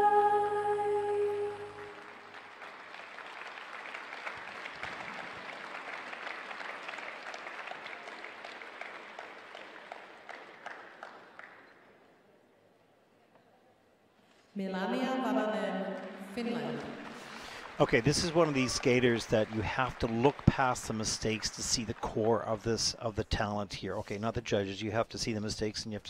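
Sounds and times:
audience applauding: 0:01.6 - 0:11.9, 0:16.6 - 0:23.5.

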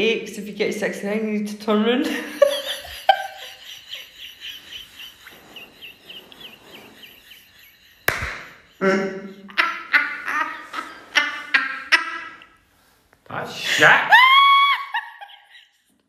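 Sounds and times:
woman laughing loudly: 0:02.1 - 0:12.6, 0:14.1 - 0:15.9
high wheezing squeaks: 0:03.3 - 0:12.8.

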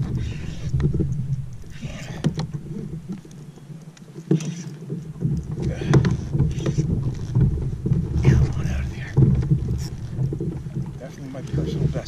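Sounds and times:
wind rumbling on microphone: 0:00.0 - 0:12.0
sharp clicks and knocks: 0:04.0 - 0:12.0.

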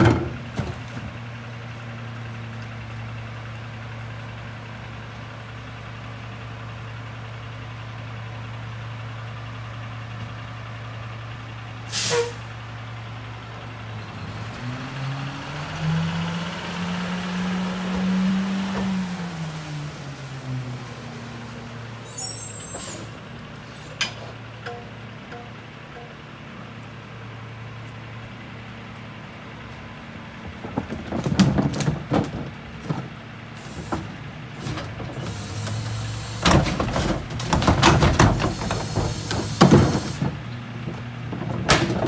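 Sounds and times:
garbage truck diesel engine: 0:00.0 - 0:42.0
air brake hiss: 0:11.9 - 0:12.5.

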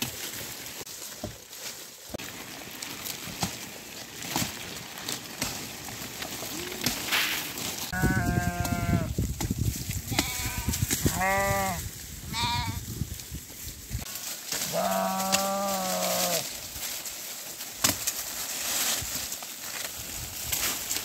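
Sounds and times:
sheep bleating: 0:07.9 - 0:09.1, 0:10.1 - 0:12.8.

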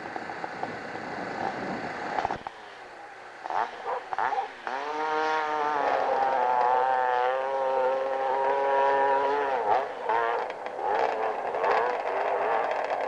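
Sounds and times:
dirt bike engine revving: 0:00.1 - 0:13.0.

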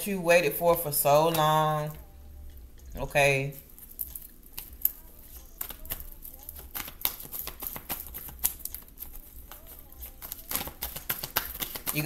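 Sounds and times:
cards being shuffled: 0:04.3 - 0:12.0.

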